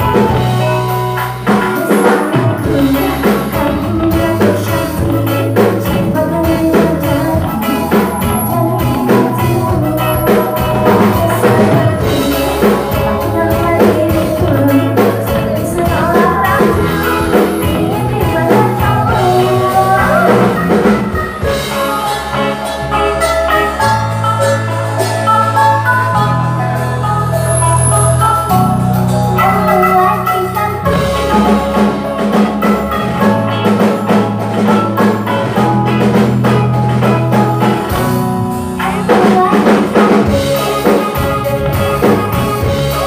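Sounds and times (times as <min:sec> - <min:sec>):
bass guitar: 0:00.0 - 0:43.0
drum kit: 0:00.0 - 0:43.0
electric guitar: 0:00.0 - 0:43.0
keyboard: 0:00.0 - 0:43.0
woman singing pop song: 0:01.5 - 0:23.9, 0:38.7 - 0:41.1.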